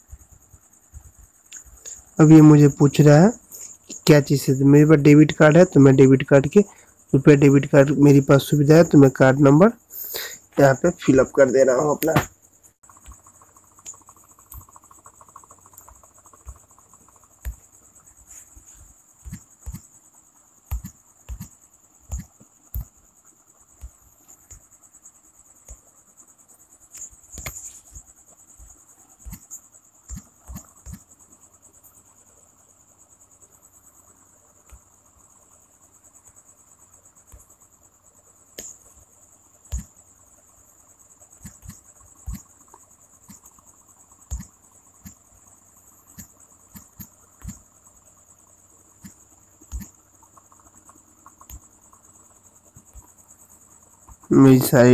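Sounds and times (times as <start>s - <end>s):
cricket trill: 0.0s - 54.9s
fingertip tapping touchscreen: 19.2s - 19.9s, 20.7s - 22.9s, 29.2s - 31.1s, 41.4s - 42.5s, 44.3s - 45.2s, 46.1s - 47.6s, 49.0s - 51.7s.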